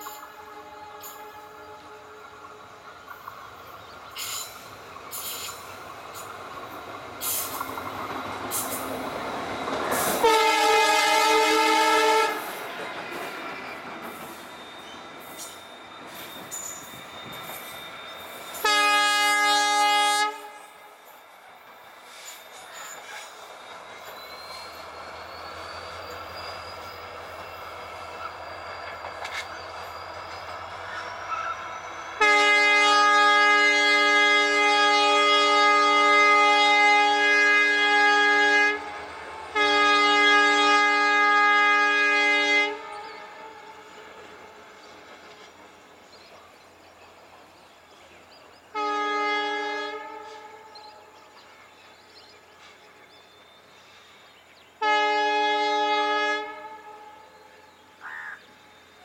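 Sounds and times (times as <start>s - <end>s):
locomotive horn blasts: 0.0s - 2.7s, 10.0s - 12.6s, 18.5s - 20.9s, 32.1s - 43.9s, 48.7s - 50.9s, 54.8s - 57.6s
train wheel clicks and rumble: 2.4s - 10.4s, 12.4s - 18.7s, 22.0s - 31.5s, 44.2s - 48.1s.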